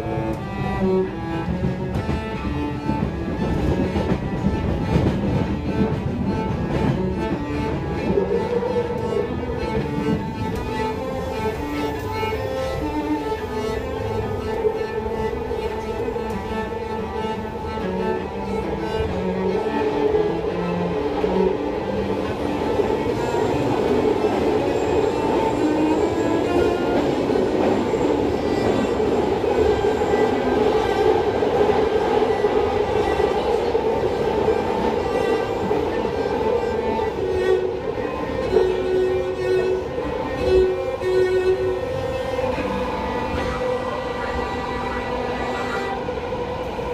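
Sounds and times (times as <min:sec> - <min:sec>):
cello bowed melody: 0:00.0 - 0:46.9
low rumble of train carriage: 0:00.0 - 0:46.9.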